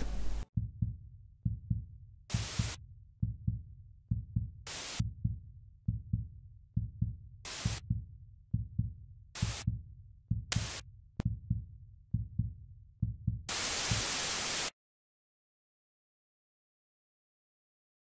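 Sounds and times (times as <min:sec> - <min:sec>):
heartbeat thumps: 0:00.0 - 0:14.3
static hiss: 0:13.5 - 0:14.7.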